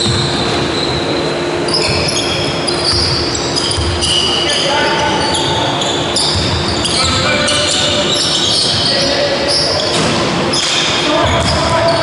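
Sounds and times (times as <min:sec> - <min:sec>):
basketball bouncing: 0:00.0 - 0:00.6, 0:02.8 - 0:04.1, 0:06.2 - 0:07.0
shoes squeaking on floor: 0:00.0 - 0:12.0.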